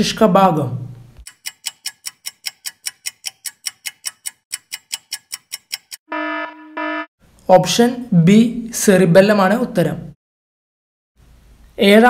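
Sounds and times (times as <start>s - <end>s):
rapid clock ticks: 1.2s - 6.1s
buzzer tone: 6.1s - 7.1s.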